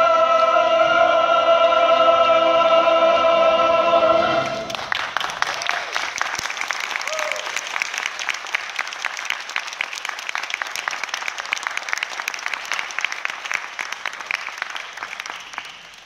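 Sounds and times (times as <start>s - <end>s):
audience applauding: 4.4s - 16.0s.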